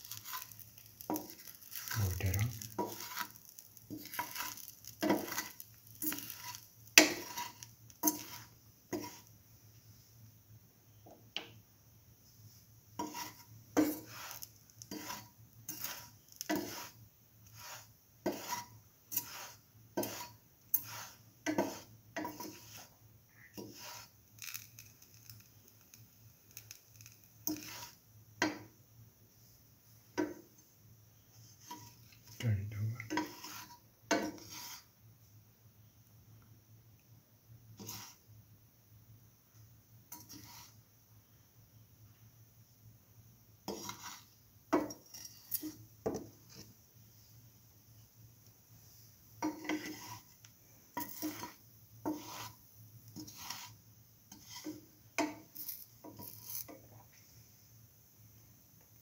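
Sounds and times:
spatula scraping frying pan: 0:00.0 - 0:09.4, 0:13.0 - 0:28.7, 0:31.3 - 0:35.0, 0:37.7 - 0:38.3, 0:40.1 - 0:40.8, 0:43.6 - 0:46.8, 0:48.8 - 0:57.4
faint sizzle of frying oil: 0:00.0 - 0:59.0.

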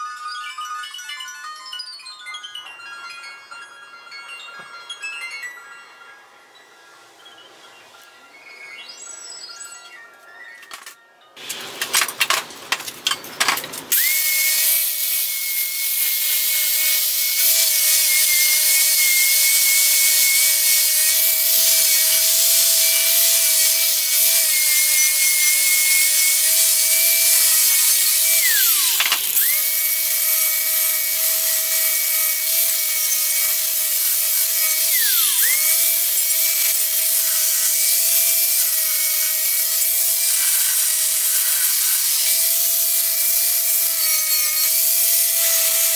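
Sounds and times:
metal clinks: 0:00.0 - 0:14.0
angle grinder grinding metal: 0:10.2 - 0:45.9.

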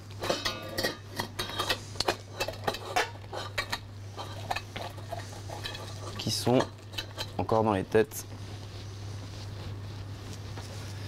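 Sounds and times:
steady low hum: 0:00.0 - 0:11.0
spatula scraping fish in a sieve: 0:00.8 - 0:07.4.

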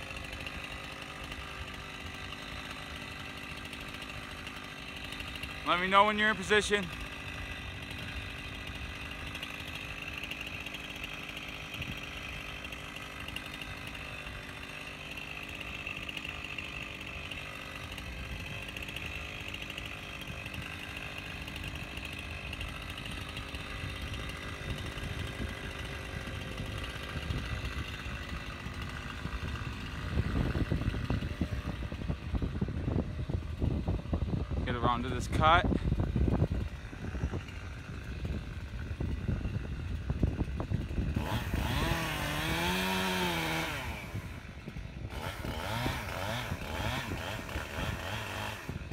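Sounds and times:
chainsaw idling: 0:00.0 - 0:48.9.

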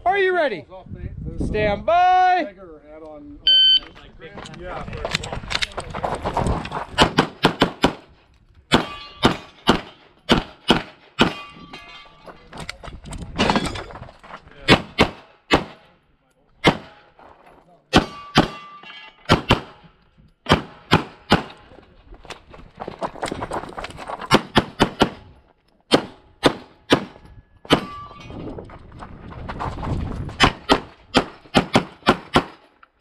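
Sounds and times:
pistol shots: 0:07.0 - 0:08.1, 0:08.7 - 0:11.4, 0:14.7 - 0:15.8, 0:16.6 - 0:17.1, 0:17.9 - 0:18.7, 0:19.3 - 0:19.8, 0:20.5 - 0:21.6, 0:25.9 - 0:28.1, 0:30.4 - 0:32.7.

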